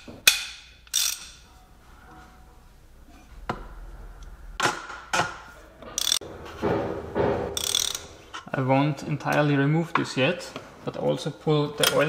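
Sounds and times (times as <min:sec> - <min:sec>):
metallic clicks of ratchet: 0:00.2 - 0:01.4, 0:06.0 - 0:06.2, 0:07.6 - 0:08.1.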